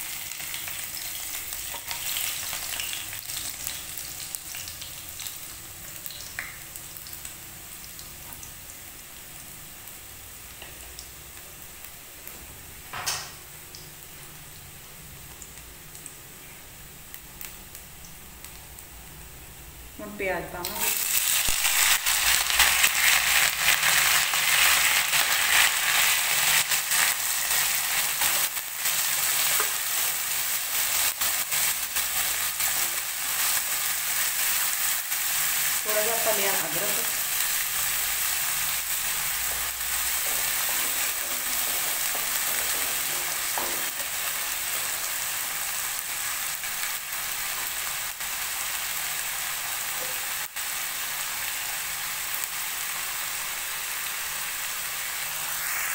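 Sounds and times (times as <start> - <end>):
onions sizzling in hot oil: 0.0 - 55.9
wooden spatula scraping a pan: 39.5 - 44.3.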